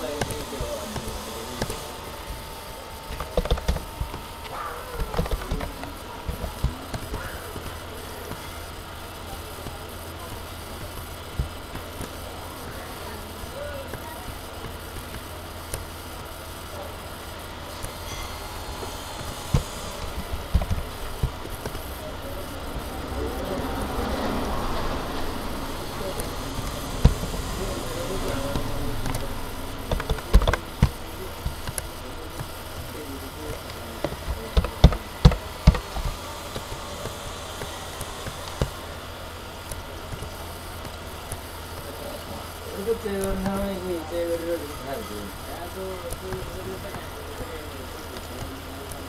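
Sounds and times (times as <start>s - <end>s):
steady low hum: 0.0s - 49.0s
dull handling thumps: 18.6s - 22.1s.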